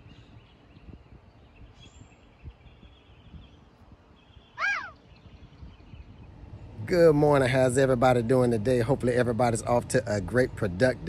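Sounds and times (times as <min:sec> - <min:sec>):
faint bird chirps: 0:00.0 - 0:06.8
loud animal call: 0:04.6 - 0:05.0.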